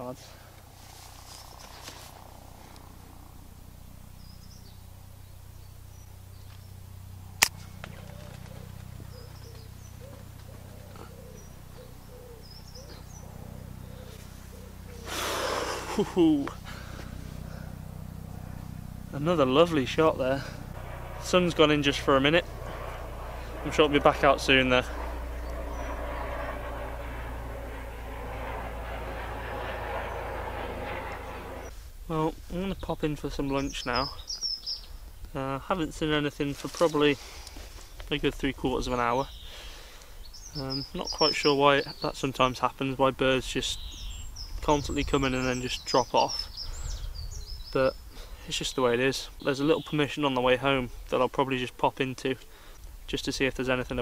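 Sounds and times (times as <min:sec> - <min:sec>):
distant engine drone: 0:00.0 - 0:54.0
faint bird chirps: 0:07.8 - 0:15.1.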